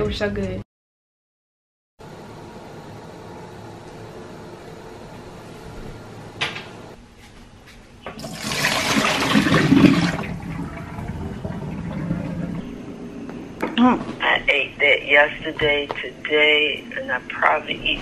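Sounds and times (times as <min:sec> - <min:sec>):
water splashing into a metal sink: 0:08.2 - 0:12.6.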